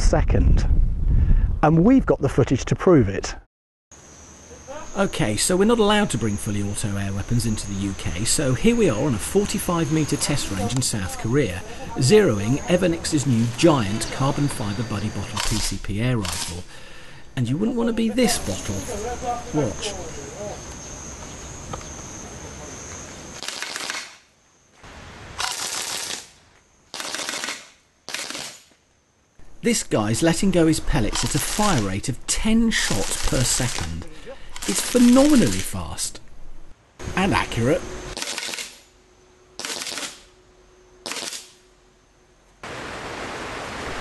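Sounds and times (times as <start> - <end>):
heavy rain hissing: 4.7 - 17.4, 29.4 - 36.2, 42.6 - 44.0
air rifle full-auto bursts: 23.4 - 24.2, 26.9 - 28.7, 38.2 - 38.8, 39.6 - 40.2, 41.0 - 41.5
air rifle firing full auto: 39.6 - 40.2, 41.0 - 41.5.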